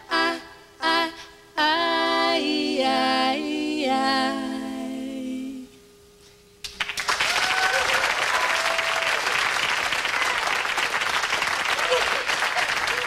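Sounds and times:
women singing in harmony: 0.0 - 5.8.

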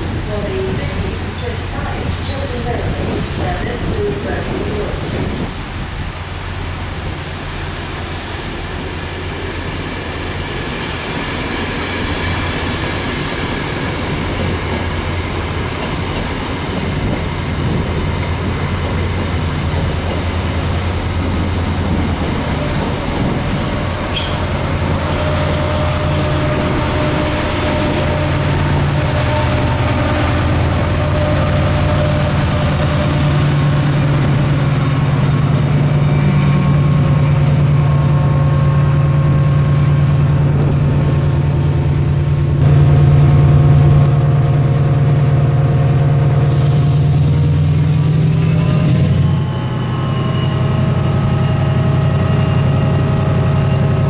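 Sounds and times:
diesel train engine running: 0.0 - 54.0
air hisses: 46.5 - 48.5.

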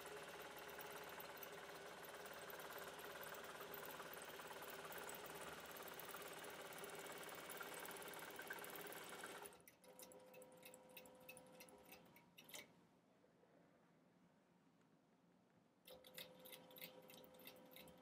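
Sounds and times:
quilting machine stitching: 0.0 - 12.7.

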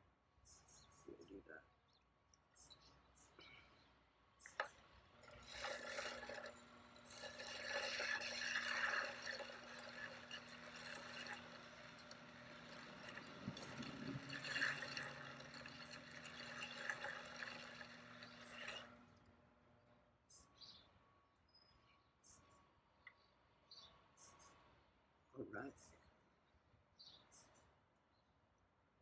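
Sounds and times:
pottery wheel low hum: 4.5 - 19.9.

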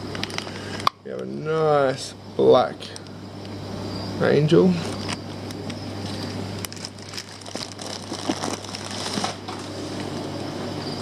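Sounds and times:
plastic bags crinkling: 6.0 - 9.7.

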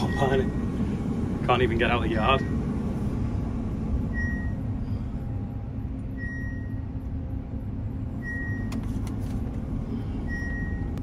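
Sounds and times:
harvester engine drone: 0.0 - 11.0
short high beep: 6.2 - 6.9.

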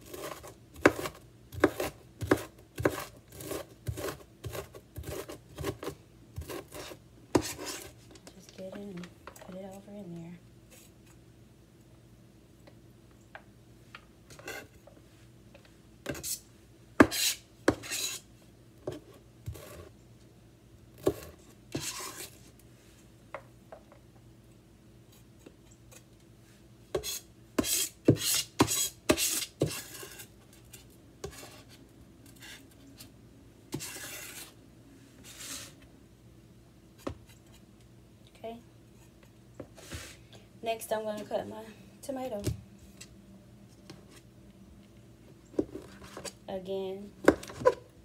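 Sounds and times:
knife scraping cutting board: 0.0 - 8.0, 14.3 - 14.8, 16.1 - 16.4, 17.0 - 18.3, 18.9 - 19.9, 21.0 - 22.4, 26.9 - 32.8, 33.7 - 34.6, 35.2 - 35.8.

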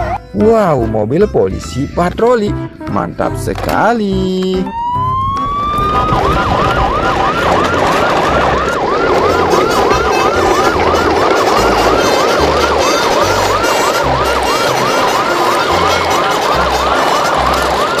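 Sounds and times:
low bass line: 0.0 - 17.9
electronic yelp siren: 4.4 - 18.0.

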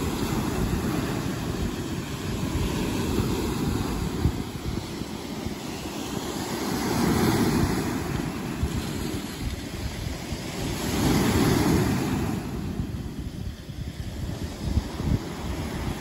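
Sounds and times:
waves breaking on a beach: 0.0 - 16.0.

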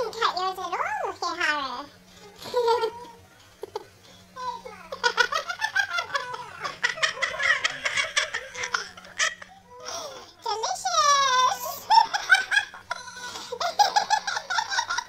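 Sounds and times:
laughter and giggling: 2.4 - 4.0, 4.9 - 10.0, 11.6 - 15.0.

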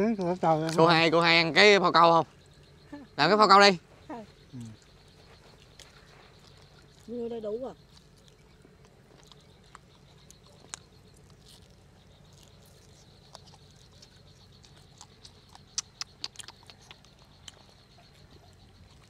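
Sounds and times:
chewing and lip-smacking: 4.2 - 19.0
sharp wet clicks: 4.3 - 19.0.

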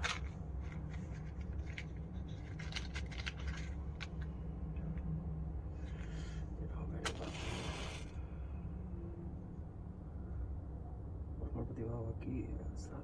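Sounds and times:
matchbox clicks and rustles: 0.0 - 4.3
steady low hum: 0.0 - 13.0.

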